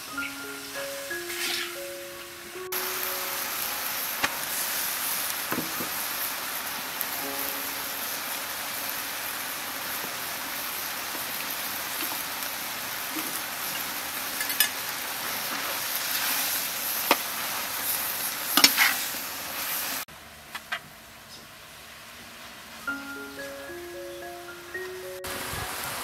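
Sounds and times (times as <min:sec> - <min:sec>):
food sizzling in a wok: 0:00.0 - 0:20.3, 0:20.9 - 0:26.0
metal spatula scraping wok: 0:01.3 - 0:01.8, 0:18.6 - 0:19.0.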